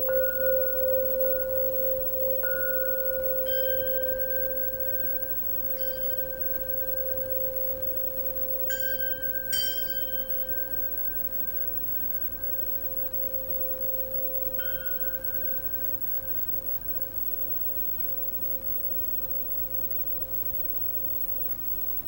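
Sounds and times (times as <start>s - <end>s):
steady low ringing tone: 0.0s - 22.0s
metal rods struck and ringing: 8.7s - 10.7s.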